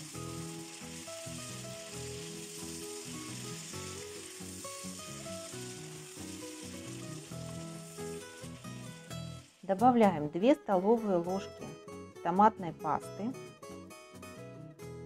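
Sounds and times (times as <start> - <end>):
vegetables sizzling in oil: 0.0 - 11.4
background music: 0.0 - 15.0
spatula stirring in pan: 0.4 - 9.6.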